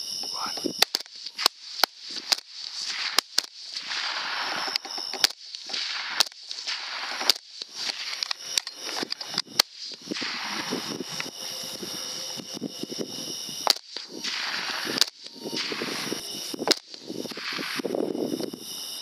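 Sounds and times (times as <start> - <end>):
high insect chirr: 0.0 - 19.0
rifle shots: 0.8 - 9.4.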